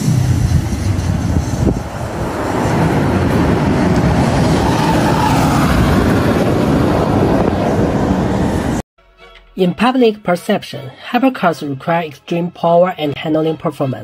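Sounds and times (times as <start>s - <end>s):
car passing at speed: 0.0s - 8.8s
tyre and wind noise: 0.0s - 8.8s.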